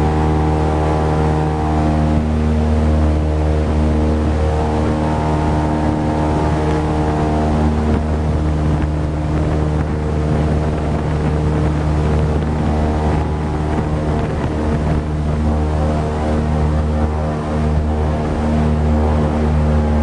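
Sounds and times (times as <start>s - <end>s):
airboat engine and propeller drone: 0.0s - 20.0s
wind buffeting microphone: 0.0s - 20.0s.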